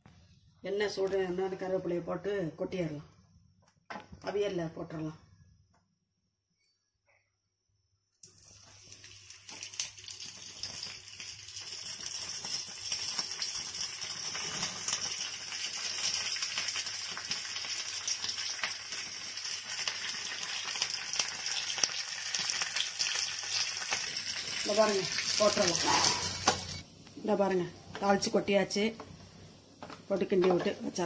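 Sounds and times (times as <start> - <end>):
leaves sizzling in hot oil: 8.2 - 29.0.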